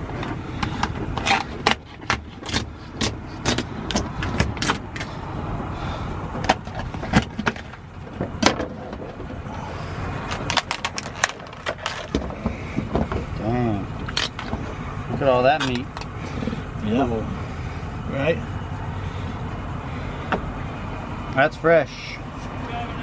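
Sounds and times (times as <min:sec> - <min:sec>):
lobster shell cracking: 0:10.2 - 0:12.2.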